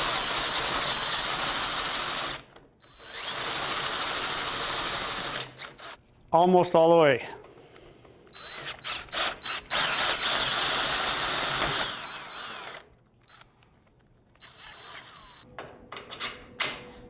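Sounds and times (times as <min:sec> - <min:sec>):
drill cutting through steel: 0:00.0 - 0:06.0, 0:08.4 - 0:12.9, 0:14.4 - 0:15.4.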